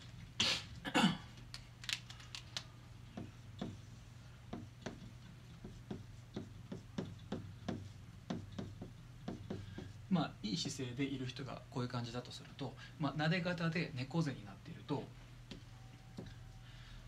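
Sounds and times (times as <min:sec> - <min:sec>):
low steady hum: 0:00.0 - 0:17.0
marker drawing on whiteboard: 0:03.0 - 0:10.2, 0:15.4 - 0:16.7.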